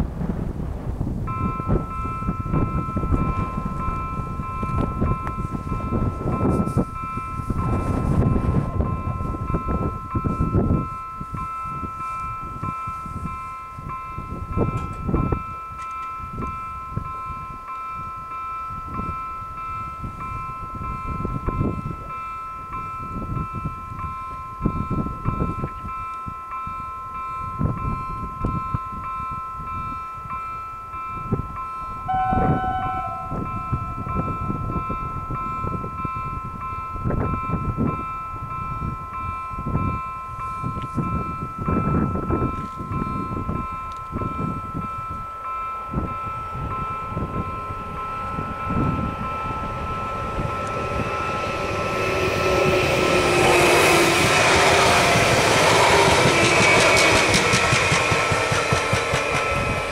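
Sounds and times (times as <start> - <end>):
wind rumble on microphone: 0.0 - 59.9
two-tone crossing warning bell: 1.1 - 59.9
low electronic tone: 32.1 - 35.0, 45.7 - 58.3.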